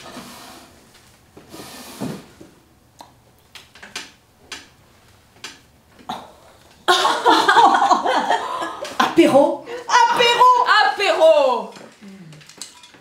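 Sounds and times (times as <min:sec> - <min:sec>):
chair scrape and thump: 0:00.0 - 0:02.6.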